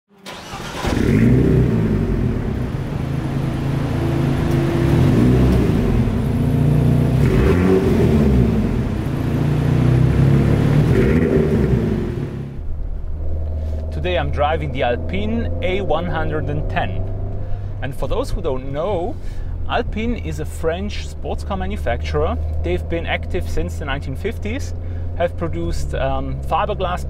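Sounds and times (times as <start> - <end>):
car engine revving: 0.2 - 27.0.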